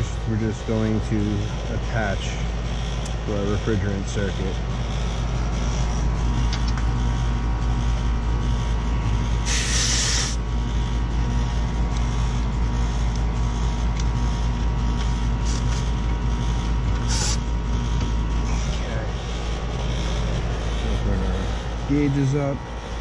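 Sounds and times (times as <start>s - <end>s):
air conditioner unit humming: 0.0s - 23.0s
refrigerant hissing: 9.4s - 10.4s, 15.4s - 15.9s, 17.0s - 17.5s.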